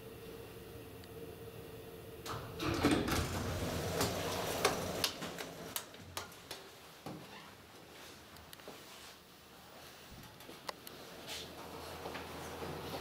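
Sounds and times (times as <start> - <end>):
lift humming: 0.0 - 6.3.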